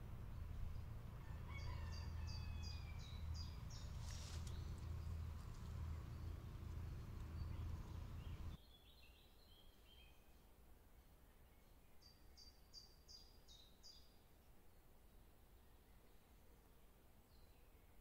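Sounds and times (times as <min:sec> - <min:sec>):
steady low rumble: 0:00.0 - 0:01.2, 0:02.8 - 0:08.6
noisy rustle: 0:03.4 - 0:08.6.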